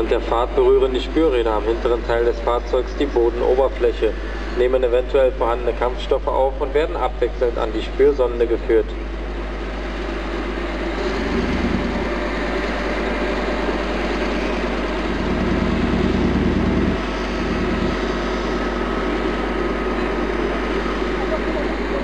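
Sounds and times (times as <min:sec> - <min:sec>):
diesel vehicle engine running: 0:00.0 - 0:22.0.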